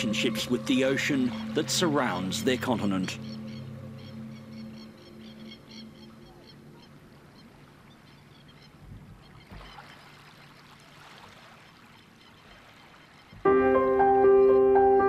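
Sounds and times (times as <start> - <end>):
low music tones: 0.0 - 9.2, 13.4 - 15.0.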